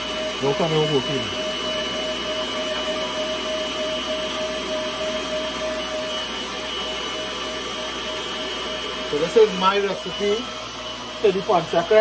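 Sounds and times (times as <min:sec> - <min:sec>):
stand mixer motor whining: 0:00.0 - 0:12.0.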